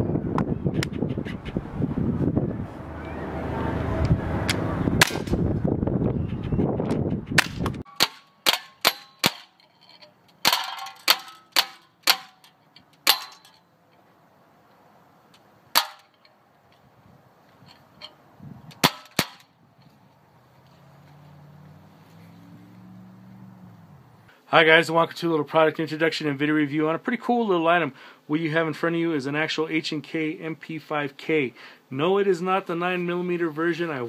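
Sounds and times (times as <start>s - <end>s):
bb gun shots cracking: 5.0s - 5.4s, 18.8s - 19.4s.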